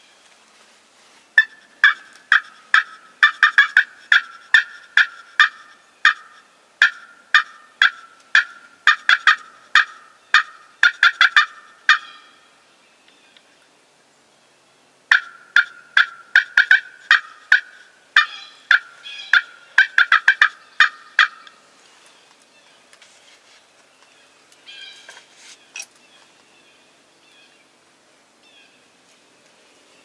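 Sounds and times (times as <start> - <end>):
wild turkeys calling: 1.3 - 13.5, 15.1 - 23.1, 24.0 - 27.6.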